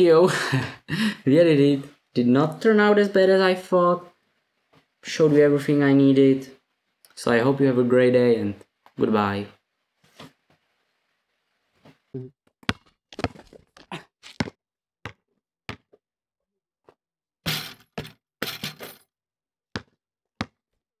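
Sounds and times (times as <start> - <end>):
basketball bouncing on asphalt: 12.6 - 16.0, 19.7 - 20.6.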